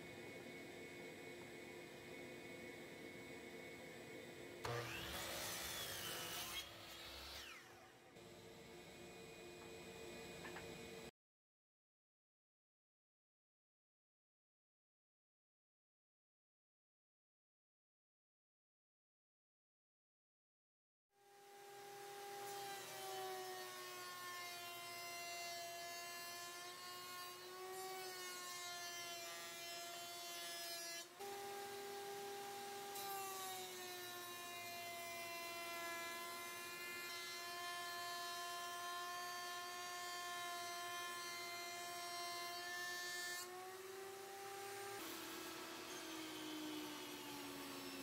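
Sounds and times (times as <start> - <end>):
router motor whine cutting wood: 0.0 - 11.1, 21.3 - 48.0.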